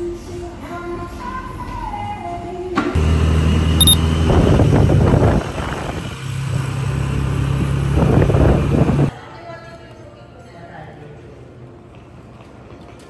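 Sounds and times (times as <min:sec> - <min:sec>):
wind and road rush: 0:04.0 - 0:09.1.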